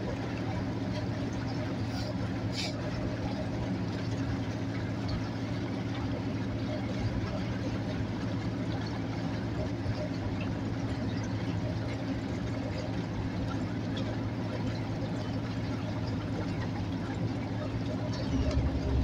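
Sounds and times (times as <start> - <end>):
outboard motor running: 0.0 - 19.0.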